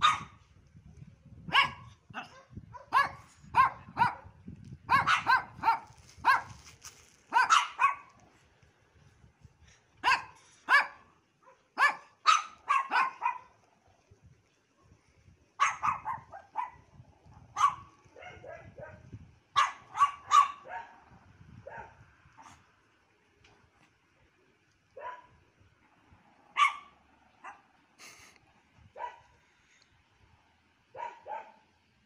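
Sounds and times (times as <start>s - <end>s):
small dogs yapping: 4.9s - 6.6s, 7.3s - 8.2s, 10.0s - 13.5s, 15.6s - 16.8s, 19.6s - 21.0s, 26.5s - 27.7s.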